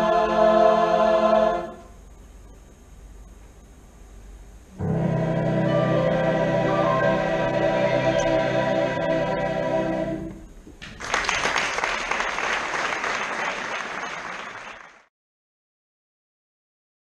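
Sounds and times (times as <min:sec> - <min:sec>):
choir holding a chord: 0:00.0 - 0:01.9, 0:04.8 - 0:10.4
audience applauding: 0:10.8 - 0:15.1.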